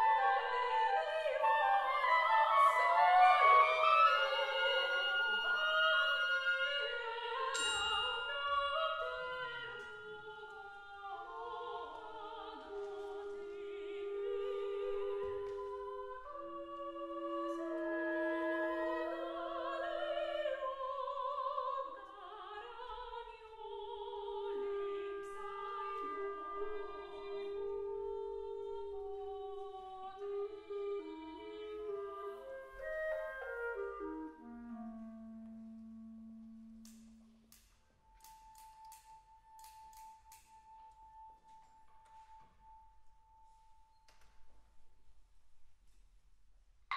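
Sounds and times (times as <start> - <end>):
clarinet: 0.0 - 7.6, 10.8 - 20.9, 24.0 - 37.4
women singing: 0.0 - 34.3.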